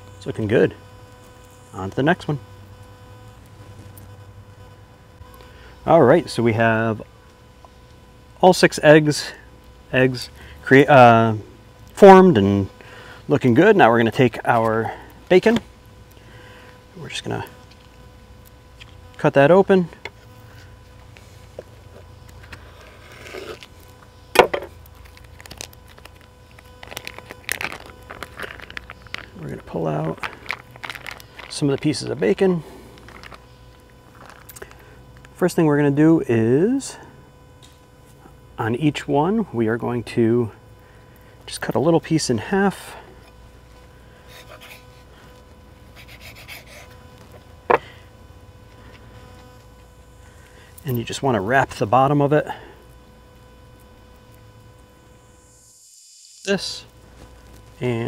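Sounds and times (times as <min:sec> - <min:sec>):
faint steady hum: 0:00.0 - 0:58.0
plastic wrapper crinkling: 0:22.3 - 0:35.3
plastic package rustling: 0:24.5 - 0:32.3, 0:32.9 - 0:34.8.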